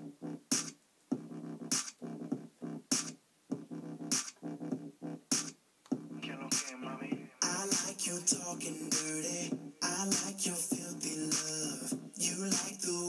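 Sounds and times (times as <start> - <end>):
chopped synth chords over a beat: 0.0 - 13.0.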